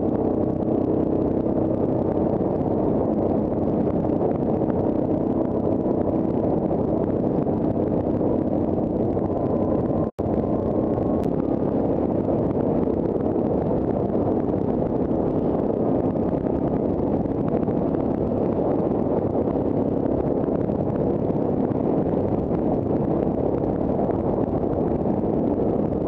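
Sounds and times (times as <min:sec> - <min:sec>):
quad engine running: 0:00.0 - 0:26.0.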